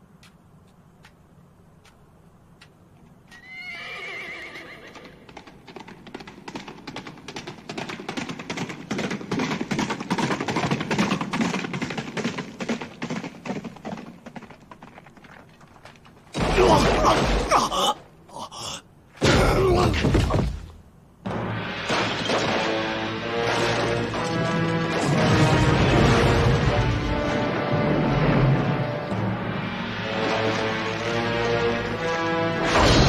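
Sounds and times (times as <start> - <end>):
hooves galloping: 0.0 - 16.4
horse whinnying: 3.3 - 5.2.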